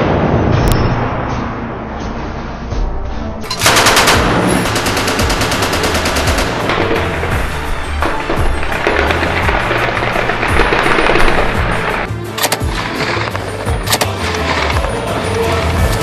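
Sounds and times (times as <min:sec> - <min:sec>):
automatic machine-gun fire: 0:03.5 - 0:07.0, 0:08.7 - 0:12.1.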